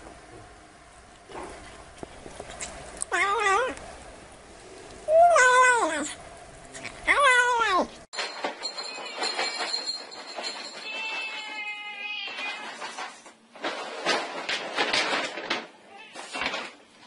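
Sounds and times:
cat meowing: 11.0s - 12.8s, 15.9s - 16.3s.

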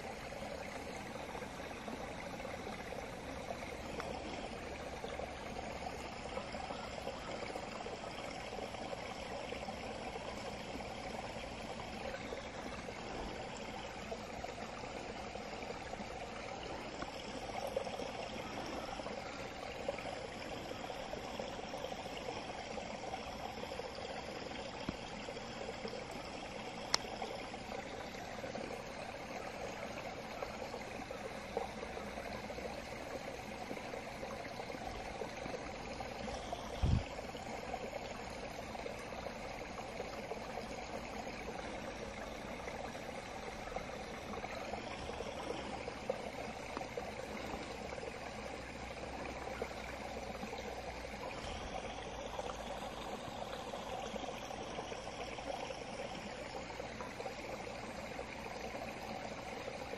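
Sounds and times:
stream babbling: 0.0s - 59.9s.

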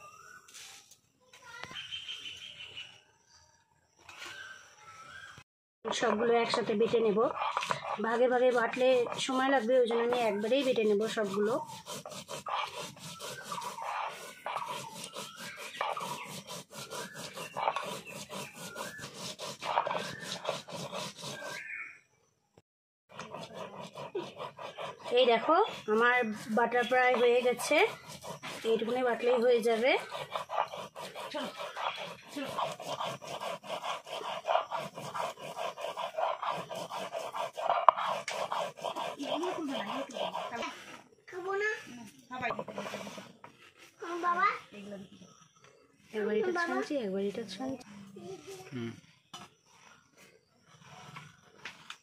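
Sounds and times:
stone roller grinding on stone slab: 5.9s - 21.7s, 23.1s - 41.1s.

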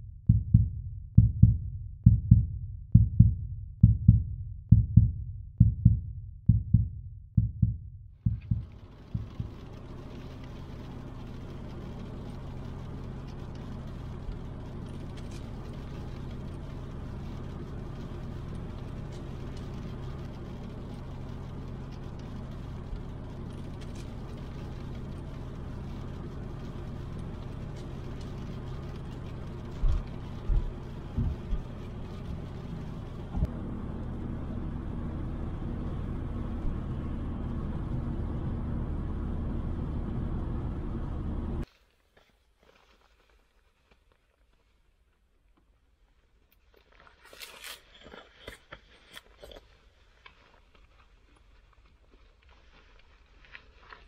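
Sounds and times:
loud low thumps: 0.1s - 9.6s
car engine and road noise: 5.6s - 41.7s, 45.6s - 54.0s.

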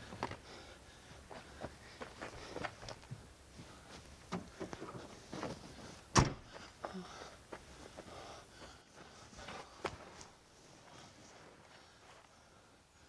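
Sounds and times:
car tailgate slamming shut: 6.1s - 6.4s.

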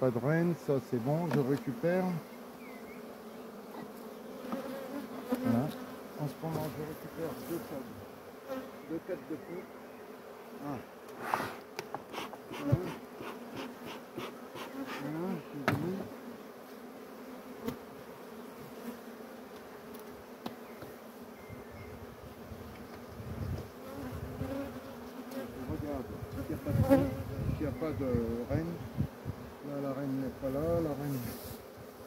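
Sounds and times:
honeybees buzzing: 0.0s - 32.0s
hive frames clicking and knocking: 1.1s - 1.8s, 3.7s - 6.8s, 11.0s - 16.2s, 19.5s - 21.0s.

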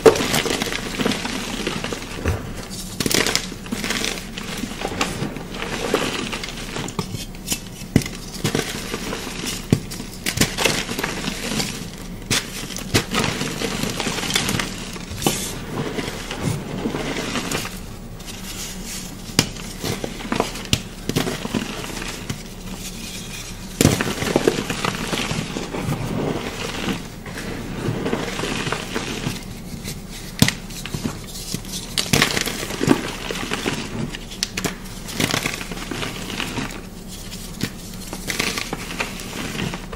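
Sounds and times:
chalk crunching and crumbling: 0.0s - 39.9s.

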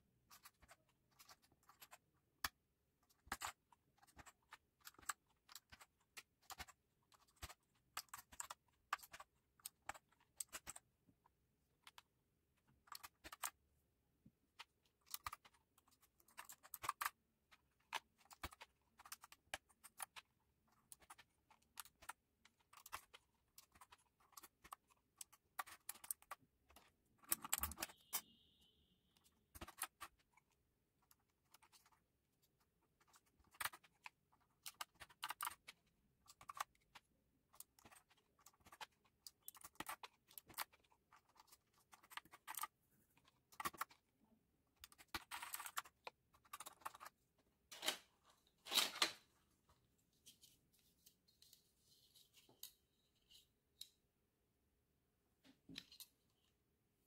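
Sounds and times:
mechanical keyboard keys clicking: 27.2s - 28.2s.

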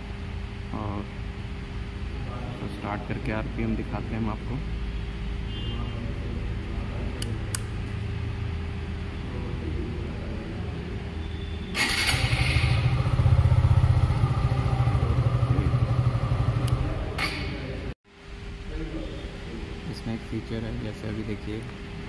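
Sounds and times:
motorcycle engine running: 11.8s - 17.2s.

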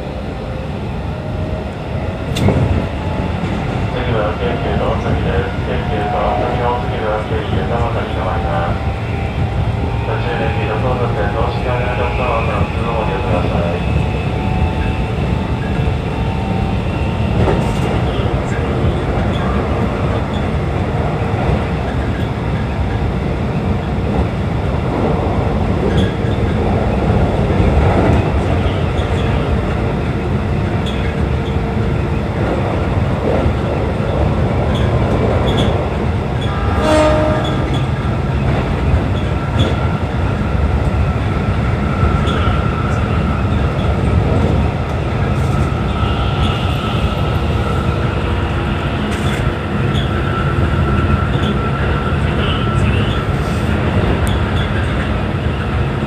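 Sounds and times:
train wheels rumbling on rail: 0.0s - 56.0s
train horn blast: 36.4s - 38.0s.

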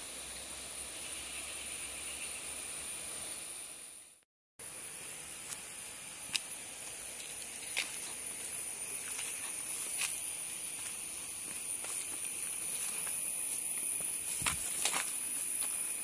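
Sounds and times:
high-pitched rural hiss: 0.0s - 16.0s
footsteps through undergrowth: 6.2s - 16.0s.

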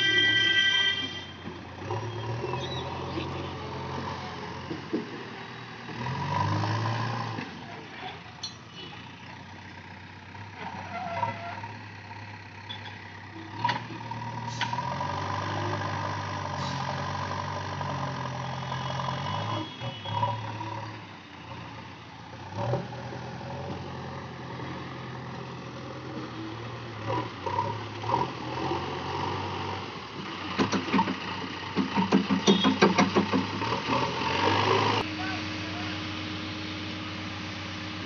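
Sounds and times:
diesel engine running under load: 1.4s - 38.0s
sharp metallic knocks: 31.8s - 33.6s.

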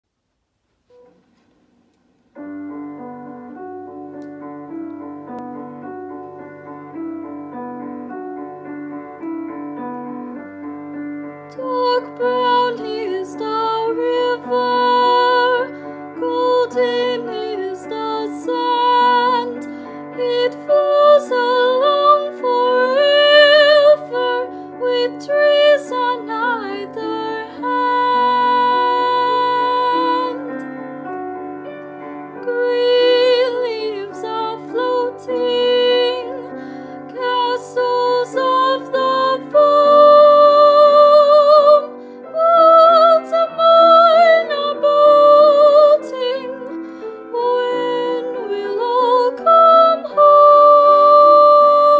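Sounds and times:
piano accompaniment: 2.3s - 51.9s
woman singing a slow ballad: 11.5s - 30.6s, 32.4s - 51.9s.

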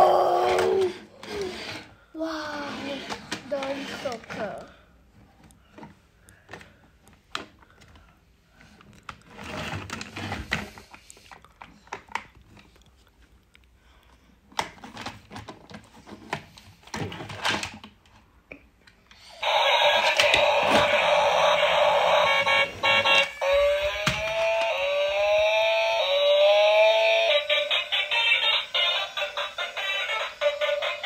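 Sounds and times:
toy electronic sound effects: 19.2s - 31.0s.

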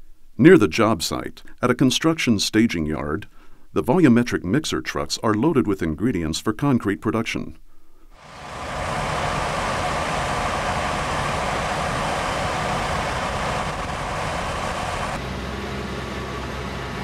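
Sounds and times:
heavy diesel machinery running: 8.2s - 15.8s.

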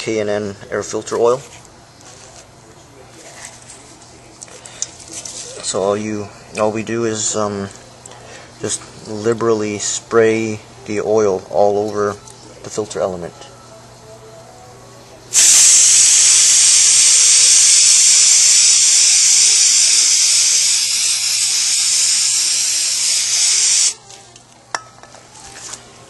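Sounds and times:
aerosol spray hiss: 15.3s - 24.0s.

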